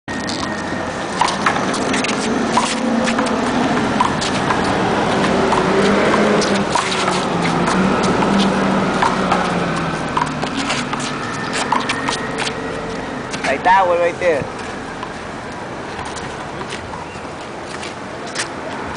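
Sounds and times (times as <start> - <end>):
traffic hum: 0.1 - 18.9
sneakers scuffing on asphalt: 9.4 - 13.6.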